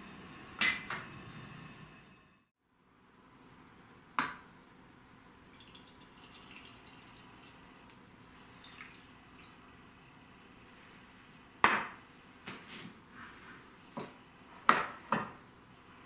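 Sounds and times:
liquid trickling and dripping: 0:05.4 - 0:09.7.

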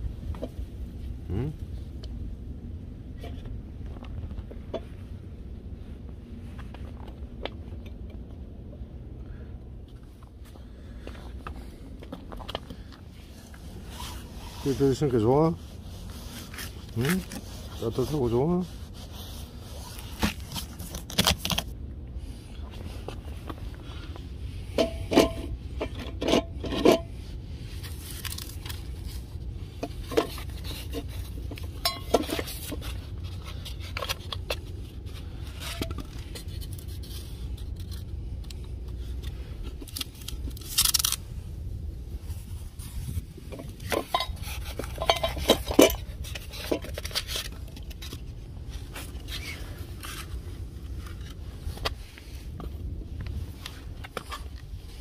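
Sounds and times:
metal bowls clinking and scraping: 0:24.7 - 0:27.2, 0:29.8 - 0:34.7, 0:43.4 - 0:48.2
bowls rattling: 0:43.6 - 0:47.2.

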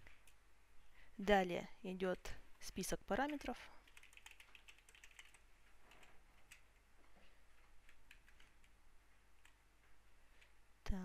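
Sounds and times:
faint keyboard typing: 0:00.0 - 0:00.4, 0:03.1 - 0:10.6.

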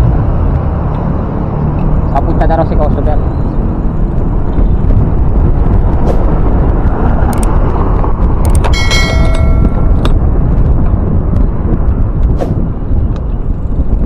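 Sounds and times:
wind rumble on microphone: 0:00.0 - 0:14.0
bright ringing chime: 0:08.8 - 0:09.9.

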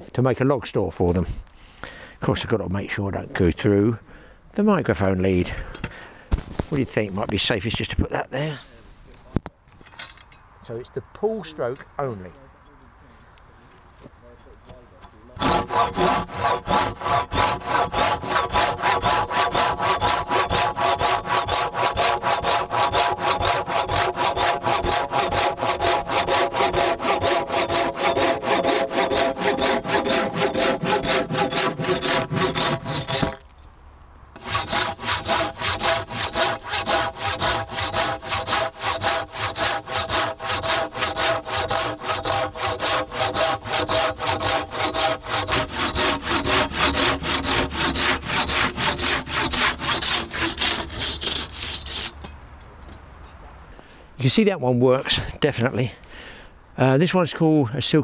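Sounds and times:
saw cutting through log: 0:15.4 - 0:33.4, 0:34.4 - 0:52.2.

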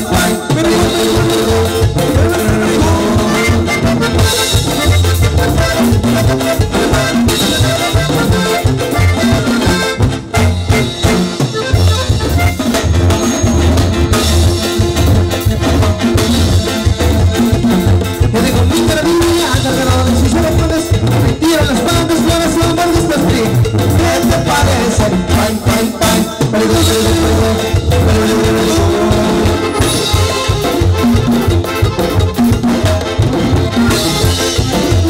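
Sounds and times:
sousaphone: 0:00.0 - 0:16.6, 0:17.3 - 0:35.0
pulsing bass beat: 0:00.0 - 0:25.9
accordion: 0:00.0 - 0:35.0
congas: 0:00.0 - 0:35.0
drum kit: 0:00.0 - 0:35.0
guitar: 0:00.0 - 0:35.0.

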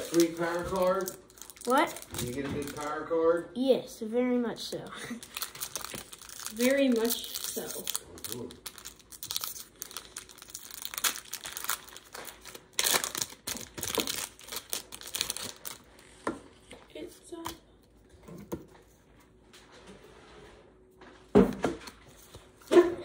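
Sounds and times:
foil wrapper crinkling and tearing: 0:00.0 - 0:03.0, 0:05.1 - 0:16.2.

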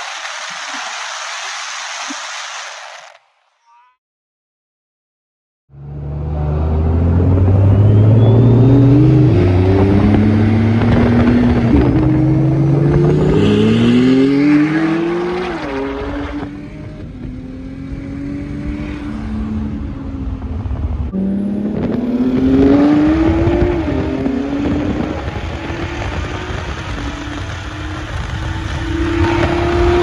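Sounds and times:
cars accelerating hard: 0:05.8 - 0:20.0, 0:21.1 - 0:30.0
tires spinning: 0:06.6 - 0:17.4, 0:21.7 - 0:30.0.

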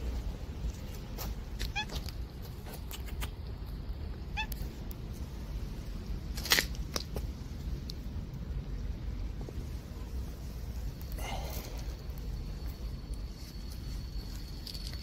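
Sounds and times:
steady low rumble: 0:00.0 - 0:15.0
cat meowing: 0:01.6 - 0:02.0, 0:04.3 - 0:04.6.

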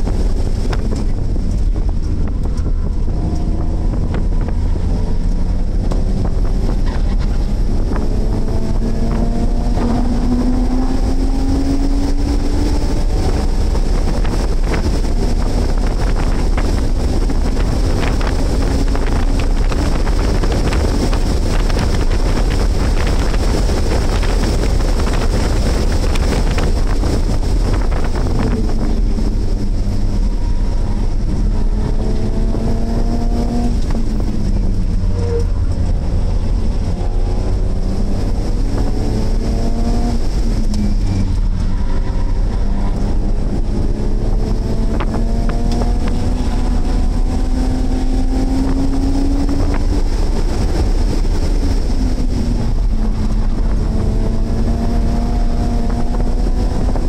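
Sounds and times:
car engine revving: 0:00.0 - 0:57.0
road and wind noise: 0:00.0 - 0:57.0.

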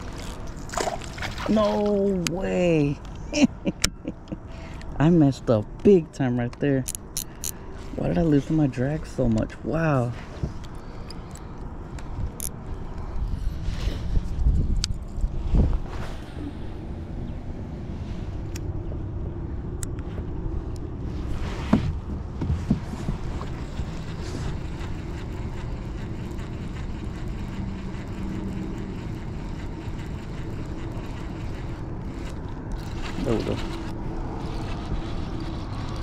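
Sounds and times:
fishing reel whirring: 0:00.0 - 0:01.5, 0:23.3 - 0:36.0.

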